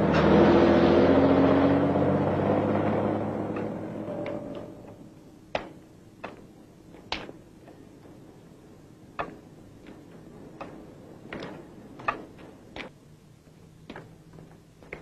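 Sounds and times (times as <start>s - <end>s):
footsteps on hard street: 3.5s - 15.0s.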